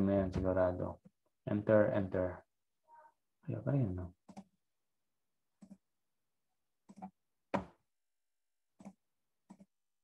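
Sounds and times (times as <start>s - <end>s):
computer mouse clicks: 4.2s - 4.5s, 5.6s - 5.8s, 8.8s - 9.7s.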